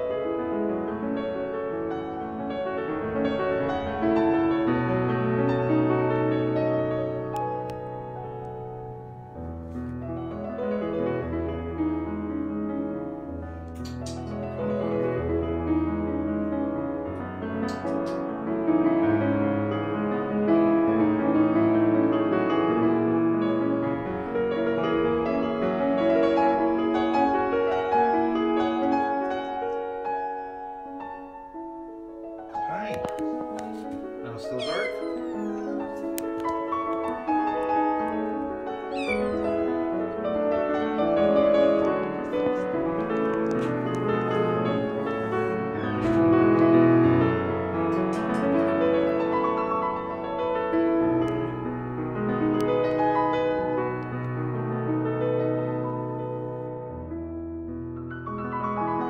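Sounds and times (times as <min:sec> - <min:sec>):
solo piano music: 0:00.0 - 0:59.0
sharp click: 0:13.8 - 0:14.4, 0:17.7 - 0:18.2
cat meowing: 0:34.4 - 0:36.2, 0:38.8 - 0:39.9.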